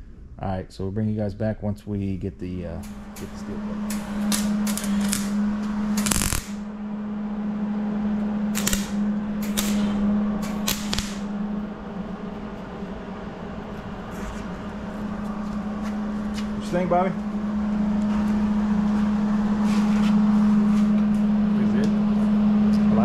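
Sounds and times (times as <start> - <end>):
welder low hum: 2.2 - 23.0
welding arc crackle: 2.8 - 6.7, 8.5 - 11.4.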